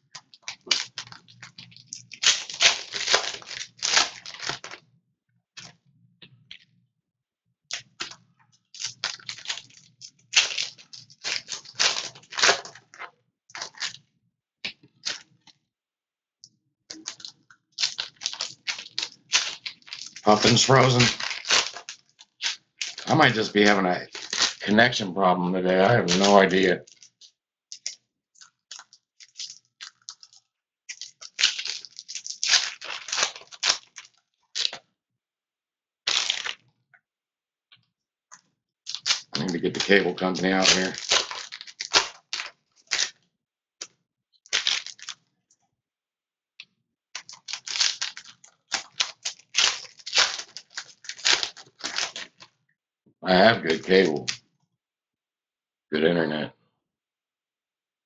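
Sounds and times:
crackling rustles: 0.0s - 4.8s, 8.8s - 14.0s, 16.9s - 25.0s, 25.8s - 34.8s, 36.1s - 36.6s, 38.3s - 43.2s, 44.5s - 45.2s, 47.2s - 52.5s
foil wrapper tearing and crinkling: 0.1s - 4.8s, 7.7s - 8.2s, 8.8s - 14.0s, 15.0s - 15.2s, 16.9s - 25.0s, 25.7s - 34.8s, 36.1s - 36.6s, 38.3s - 43.2s, 44.4s - 45.2s, 47.2s - 52.5s
cards shuffling: 0.2s - 4.8s, 8.8s - 13.9s, 16.9s - 24.8s, 25.8s - 27.2s, 38.9s - 43.1s, 47.2s - 52.5s.

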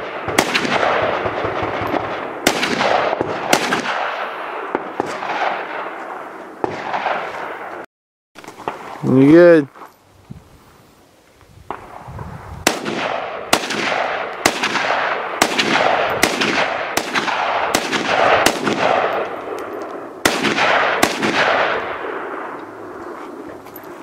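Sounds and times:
gunshot echo: 0.0s - 7.8s, 11.7s - 22.6s
rifle shots: 0.0s - 7.8s, 11.7s - 23.0s.

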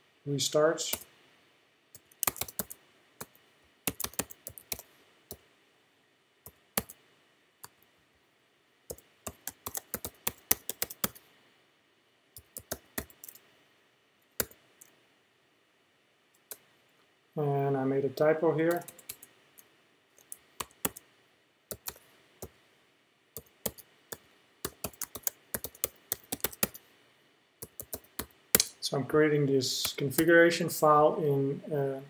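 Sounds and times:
computer keyboard typing: 2.0s - 4.9s, 6.5s - 7.0s, 8.9s - 11.2s, 12.4s - 13.4s, 14.4s - 14.9s, 18.7s - 19.3s, 20.2s - 21.0s, 21.7s - 22.0s, 23.4s - 26.8s, 27.6s - 28.3s.

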